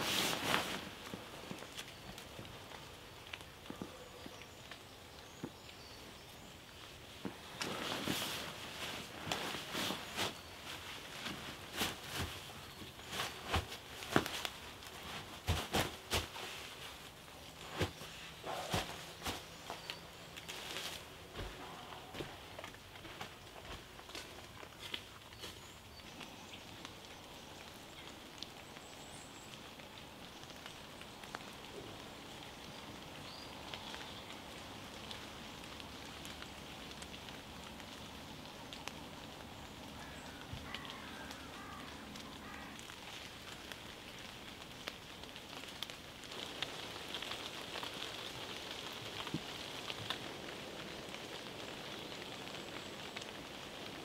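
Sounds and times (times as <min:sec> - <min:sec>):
rain on foliage: 0:00.0 - 0:54.0.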